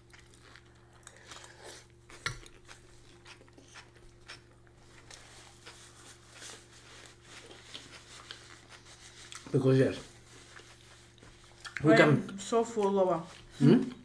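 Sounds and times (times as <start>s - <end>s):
chewing: 0.0s - 9.5s, 10.3s - 11.8s
faint steady hum: 0.0s - 14.0s.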